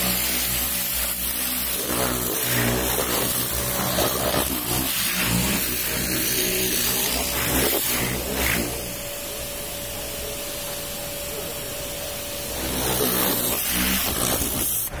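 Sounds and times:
pressure washer hissing: 0.0 - 15.0
faint steady whine: 7.2 - 13.5.

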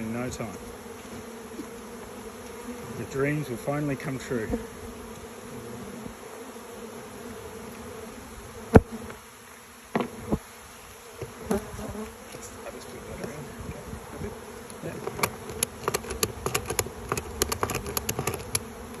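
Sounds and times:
honeybees buzzing: 0.0 - 19.0
ratchet strap clicking: 15.5 - 18.6.

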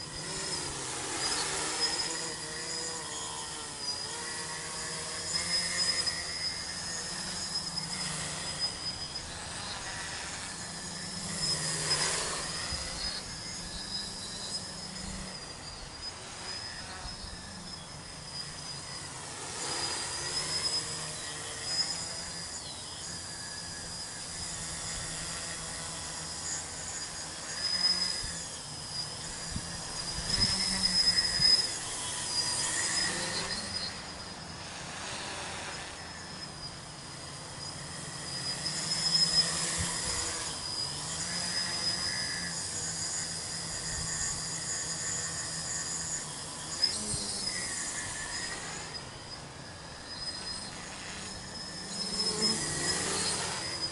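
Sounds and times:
propeller hum: 0.0 - 27.5
drone motor whine: 0.0 - 53.9.

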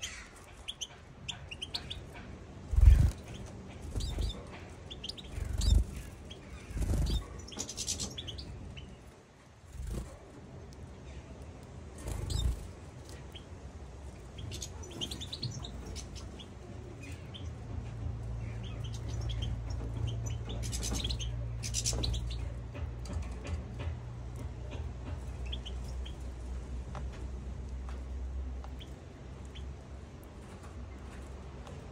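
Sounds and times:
finches chirping: 0.0 - 9.0, 12.1 - 13.5, 14.2 - 22.6, 25.3 - 26.3
steady low hum: 0.0 - 31.9.

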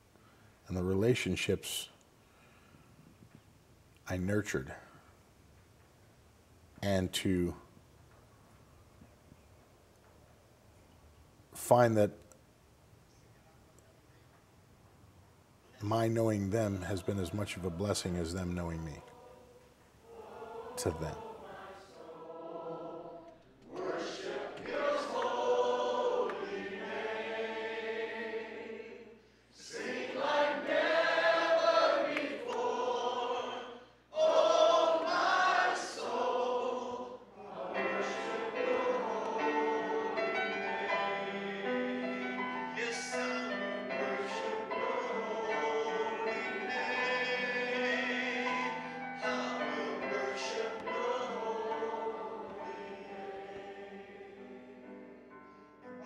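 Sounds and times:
choir singing: 16.4 - 55.4.

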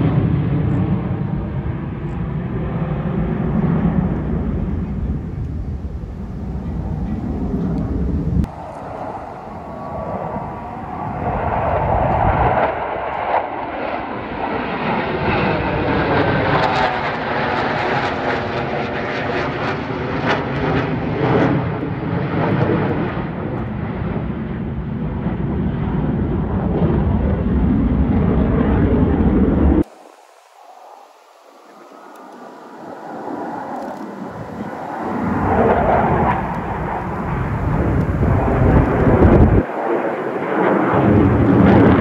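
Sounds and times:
jet fighters flying over: 0.0 - 42.0.

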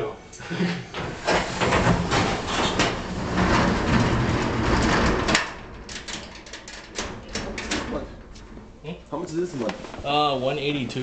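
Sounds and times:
metal roll-up door rattling: 0.9 - 8.8.

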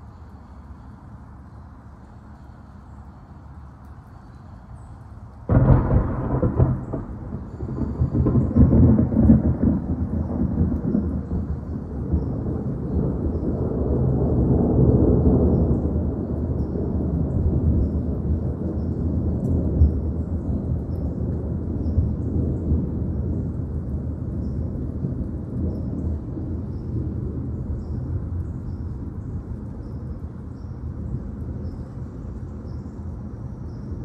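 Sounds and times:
rain hiss: 0.0 - 34.0
thunder boom and rumble: 5.5 - 31.8.

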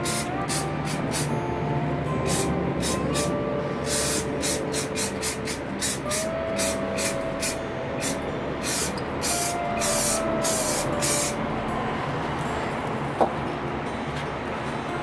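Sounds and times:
spray-paint can hissing: 0.0 - 1.3, 2.3 - 3.3, 3.9 - 11.4.

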